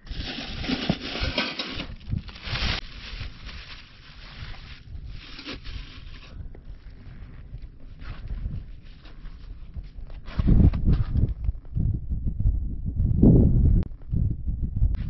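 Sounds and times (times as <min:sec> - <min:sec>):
plastic bag rustling: 0:00.0 - 0:06.4
wind rumble on microphone: 0:00.0 - 0:15.0.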